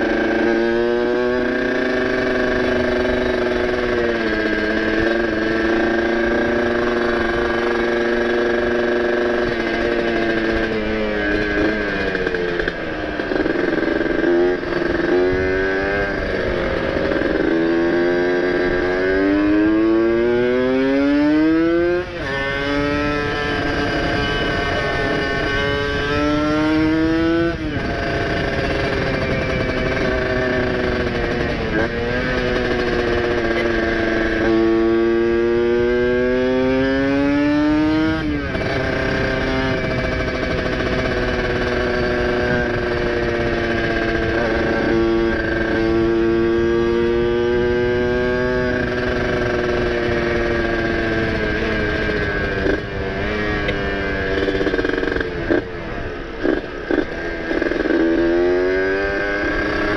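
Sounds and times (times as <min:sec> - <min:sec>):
two-stroke engine pulling under load: 0:27.6 - 0:35.0.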